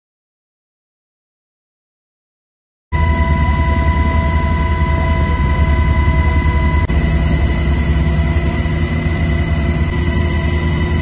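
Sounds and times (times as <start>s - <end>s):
helicopter rotor and engine rumble: 2.9s - 11.0s
high steady whine: 3.0s - 11.0s.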